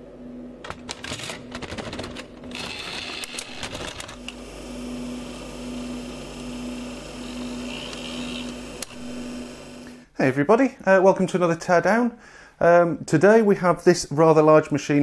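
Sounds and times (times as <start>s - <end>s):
motor hum: 0.0s - 10.1s
tape mechanism clicking and clattering: 0.6s - 4.3s.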